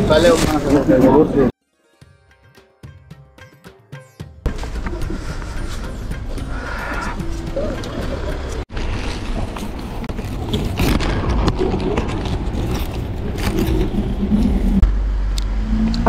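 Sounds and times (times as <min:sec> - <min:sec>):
road traffic passing: 0:04.5 - 0:10.8, 0:12.0 - 0:16.0
wind rumbling on microphone: 0:04.5 - 0:16.0.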